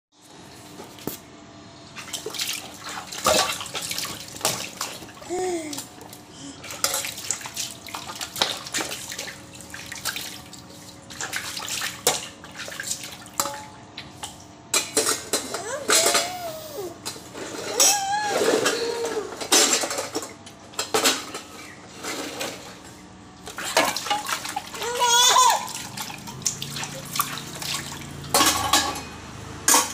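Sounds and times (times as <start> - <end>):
water splashing in a basin: 2.0 - 14.4, 23.4 - 28.9.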